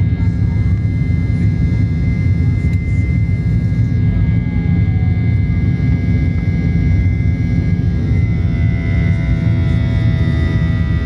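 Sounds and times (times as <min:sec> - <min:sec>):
high engine whine: 0:00.0 - 0:11.0
jet engine rumble: 0:00.0 - 0:11.0.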